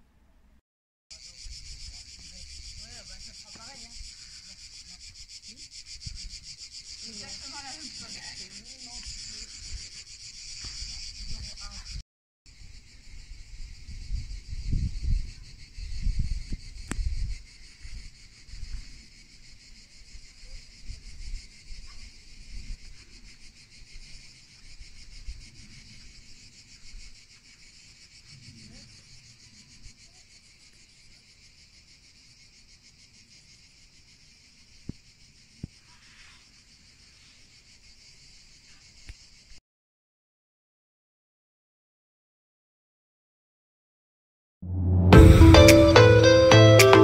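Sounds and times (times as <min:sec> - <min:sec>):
insects chirring: 0:01.1 - 0:39.6
wind rumble on microphone: 0:12.6 - 0:19.0.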